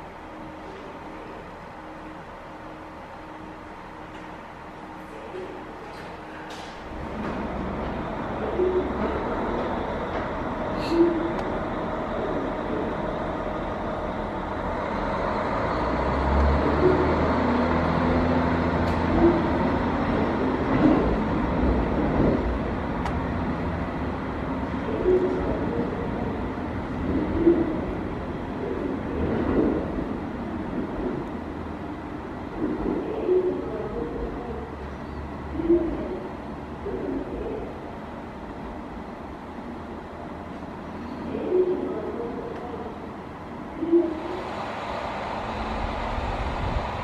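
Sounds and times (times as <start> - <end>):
diesel engine rumble: 0.0 - 47.0
bird cooing: 8.4 - 9.7, 10.8 - 11.4, 24.8 - 26.3, 27.2 - 27.9, 32.6 - 37.8, 41.0 - 43.0, 43.7 - 44.4.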